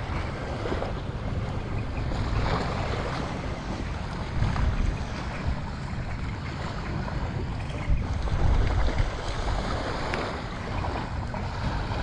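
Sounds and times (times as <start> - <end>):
wind buffeting microphone: 0.0 - 12.0
small waves hissing on shore: 8.1 - 12.0.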